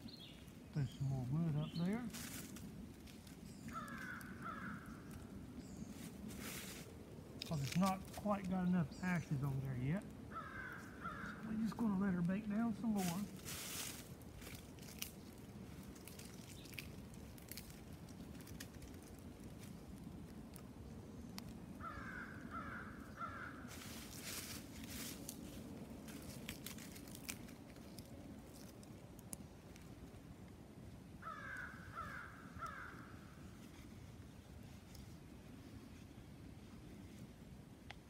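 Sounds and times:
faint rustling: 0.2s - 20.7s, 23.2s - 30.6s
crow cawing: 3.7s - 5.3s, 10.3s - 11.5s, 21.8s - 23.7s, 31.2s - 33.4s.

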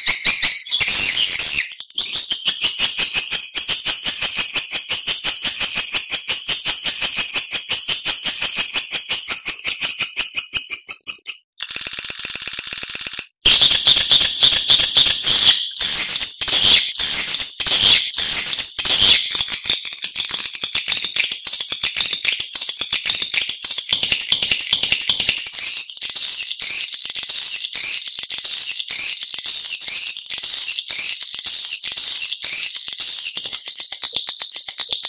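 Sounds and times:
swiftlet calls twittering: 13.5s - 19.6s.

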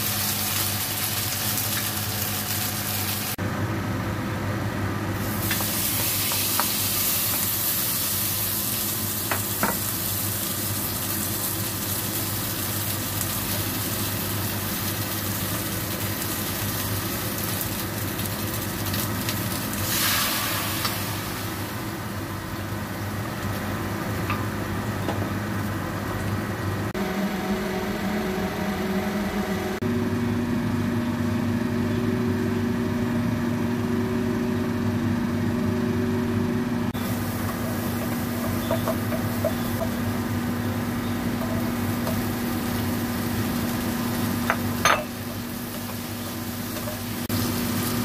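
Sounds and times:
meat sizzling in oil: 0.0s - 3.4s, 5.2s - 23.7s, 37.0s - 48.0s
low hum: 26.4s - 35.2s.

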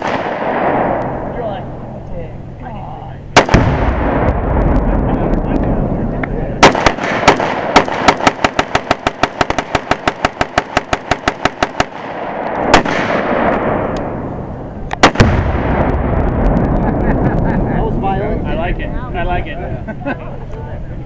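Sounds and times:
rapid gunfire: 0.0s - 1.0s, 3.4s - 5.1s, 6.6s - 13.9s, 15.0s - 16.5s
loud gunshots: 0.0s - 1.5s, 3.4s - 5.8s, 6.6s - 14.3s, 14.9s - 17.2s.

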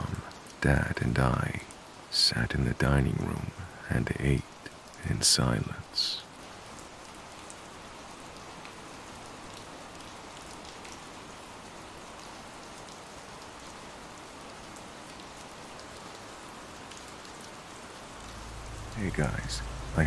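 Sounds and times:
steady rain falling: 0.0s - 20.0s.

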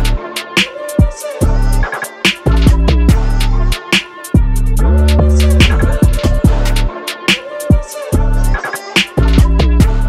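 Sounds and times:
deep sliding bass notes: 4.6s - 6.9s.

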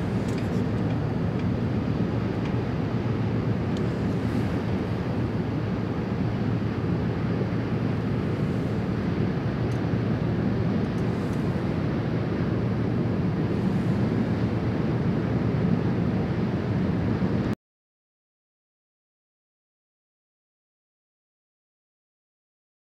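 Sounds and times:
low rumbling outdoor ambience: 0.0s - 17.6s.

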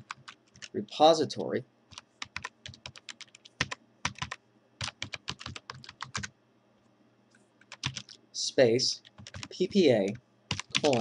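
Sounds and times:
computer keyboard keys clicking: 0.0s - 0.7s, 1.9s - 6.3s, 7.6s - 8.2s, 9.0s - 9.5s, 10.1s - 11.0s.

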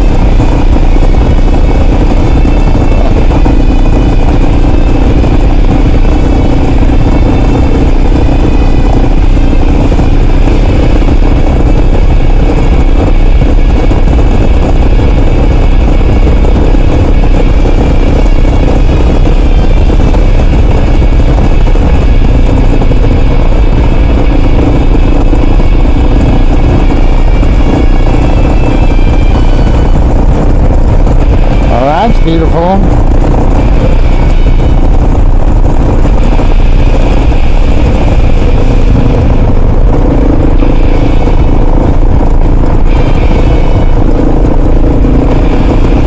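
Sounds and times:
motorcycle engine running steadily: 0.0s - 46.0s.

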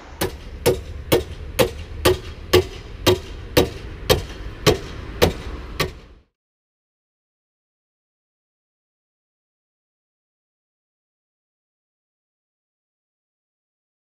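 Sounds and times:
hard ringing knocks: 0.0s - 6.2s
low hum: 0.0s - 6.3s.

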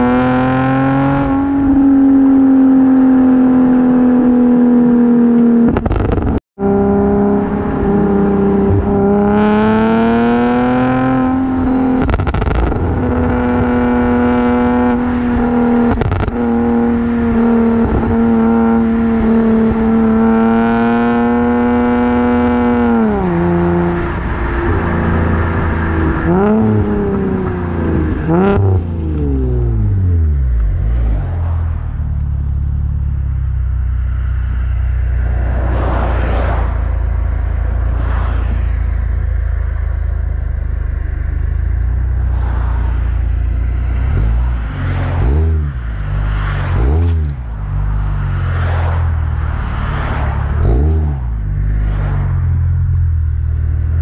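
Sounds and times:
car engine revving hard: 0.0s - 30.2s, 43.9s - 47.5s, 48.4s - 52.2s.

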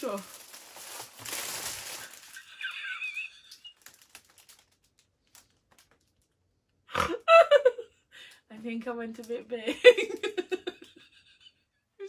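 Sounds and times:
plastic blister pack crinkling: 0.0s - 6.5s
woman laughing: 2.0s - 3.9s, 7.0s - 8.0s, 9.7s - 11.6s.

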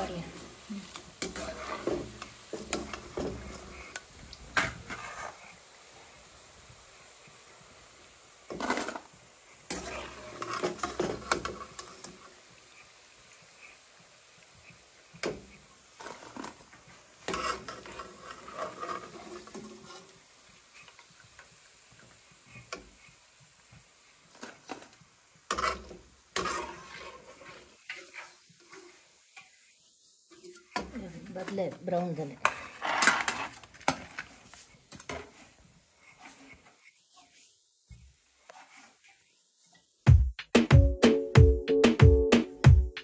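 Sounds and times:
oil sizzling: 0.0s - 40.2s
spoon clinking and scraping pan: 1.2s - 4.0s, 9.7s - 12.3s, 15.2s - 20.2s, 24.3s - 29.5s.

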